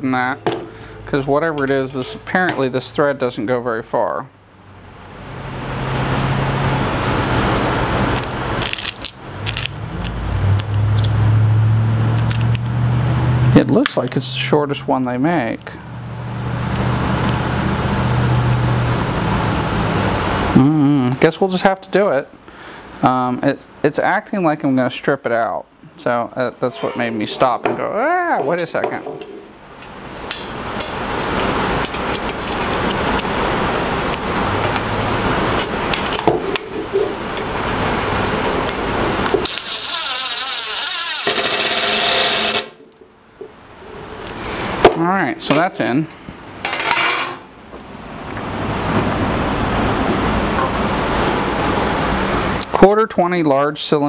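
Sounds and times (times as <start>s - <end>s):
machine hum: 29.1s - 44.8s.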